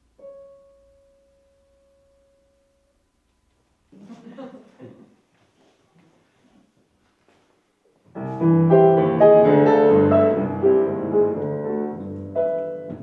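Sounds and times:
grand piano chords: 0:00.0 - 0:03.5, 0:08.1 - 0:13.0.

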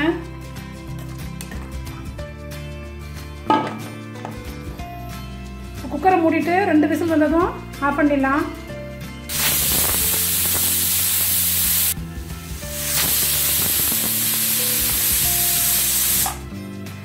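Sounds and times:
steam hissing from pressure cooker: 0:09.3 - 0:16.4.

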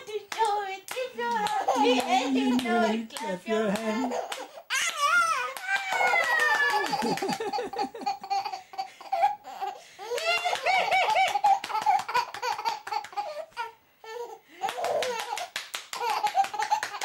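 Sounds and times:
hands clapping: 0:00.1 - 0:07.8, 0:10.2 - 0:13.3, 0:14.6 - 0:17.0
baby laughing: 0:01.4 - 0:03.1, 0:03.8 - 0:17.0.

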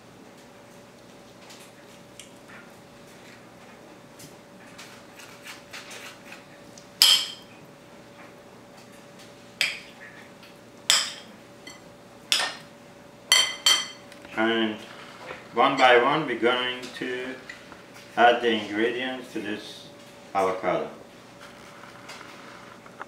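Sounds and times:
metal spoon clinking ceramic bowl: 0:13.3 - 0:14.0.

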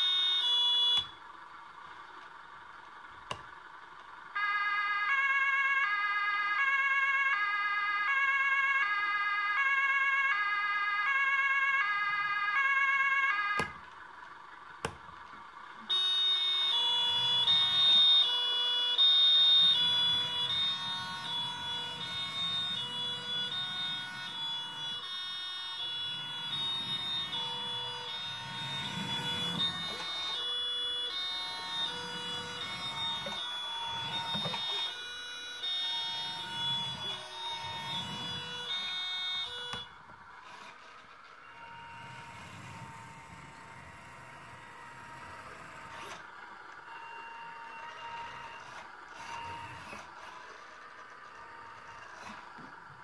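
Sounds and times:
two-tone siren from small speaker: 0:00.0 - 0:01.3, 0:04.3 - 0:14.0, 0:15.8 - 0:53.0
low rumble of model driving: 0:00.1 - 0:53.0
high electronic whine: 0:15.8 - 0:46.3.

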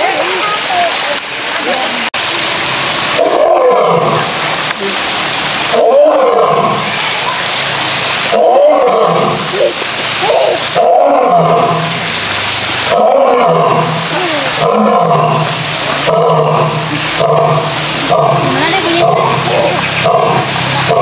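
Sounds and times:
lion roaring: 0:03.2 - 0:04.4, 0:05.7 - 0:06.9, 0:08.3 - 0:11.9, 0:12.9 - 0:21.0.

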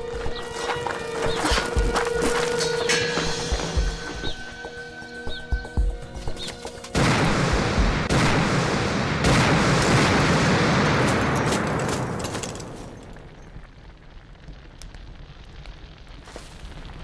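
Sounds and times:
long explosion rumble: 0:07.0 - 0:12.1
bomb explosion blast: 0:07.0 - 0:12.2
sharp explosive bursts: 0:07.0 - 0:12.2.

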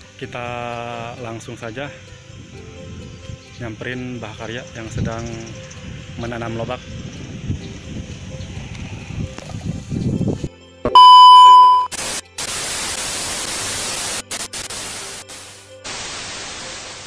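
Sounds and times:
test-pattern beep: 0:10.8 - 0:12.0
tv static hiss: 0:10.9 - 0:17.0.

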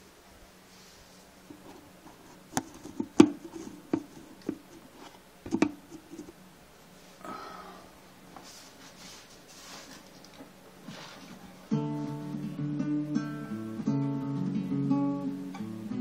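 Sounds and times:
phone handling knocks and rubs: 0:01.5 - 0:06.3.

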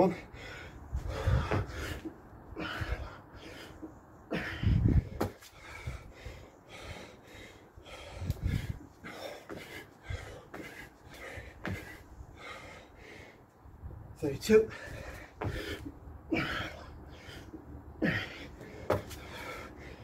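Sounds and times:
man breathing hard: 0:00.0 - 0:13.9, 0:14.6 - 0:20.0
thuds on stone paving: 0:11.6 - 0:12.0, 0:18.9 - 0:19.2.

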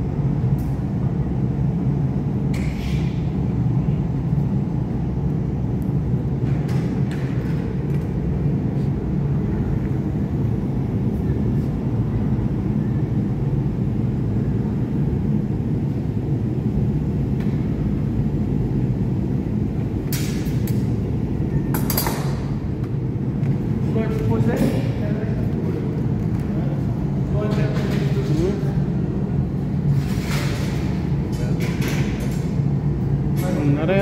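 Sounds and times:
gas furnace burners rumbling: 0:00.0 - 0:34.0.

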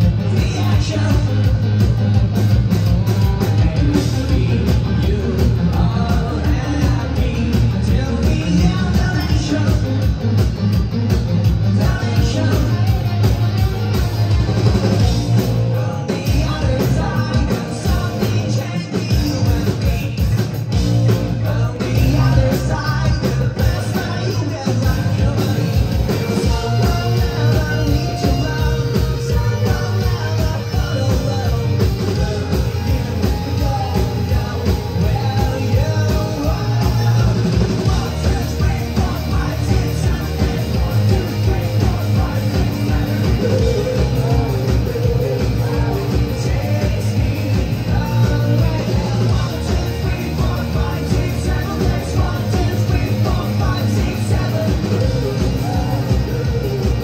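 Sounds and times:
bass: 0:00.0 - 0:57.0
drums: 0:00.0 - 0:57.0
rock band playing live: 0:00.0 - 0:57.0
person singing: 0:11.6 - 0:57.0.

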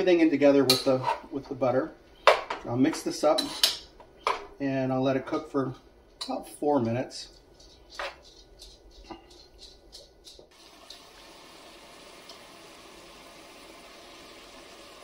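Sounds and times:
utensil scraping a pot: 0:07.4 - 0:10.6
vegetables sizzling in butter: 0:10.4 - 0:15.0.

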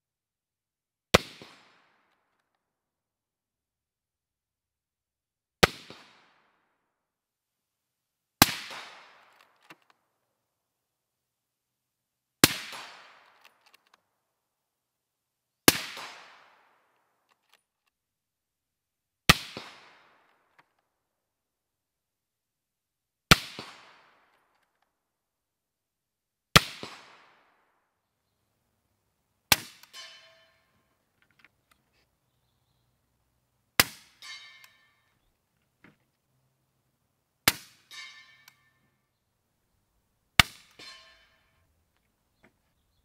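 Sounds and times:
steel target ringing: 0:29.9 - 0:30.7, 0:34.0 - 0:35.1, 0:37.8 - 0:38.8, 0:40.7 - 0:41.5.

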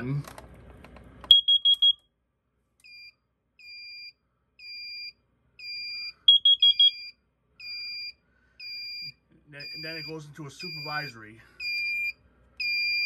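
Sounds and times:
loud high alarm beeps: 0:01.3 - 0:02.0, 0:03.7 - 0:13.0
soft repeating beep: 0:01.3 - 0:02.0, 0:06.3 - 0:07.1, 0:08.9 - 0:11.0.

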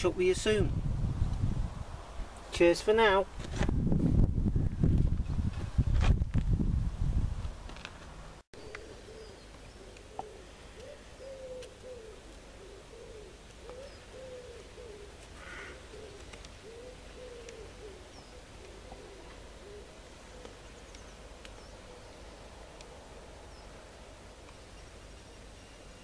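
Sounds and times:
pigeon cooing: 0:08.6 - 0:20.9, 0:21.6 - 0:22.4.

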